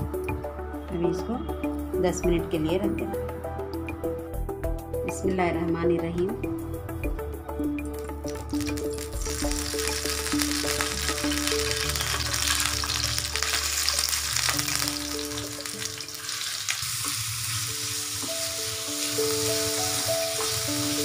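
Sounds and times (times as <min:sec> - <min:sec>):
background music: 0:00.0 - 0:21.0
chicken sizzling in oil: 0:08.3 - 0:21.0.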